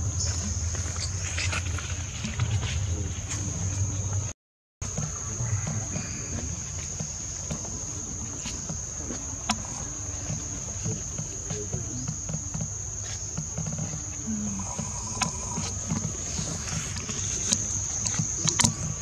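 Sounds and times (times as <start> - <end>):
insects calling high-pitched: 4.8 - 19.0.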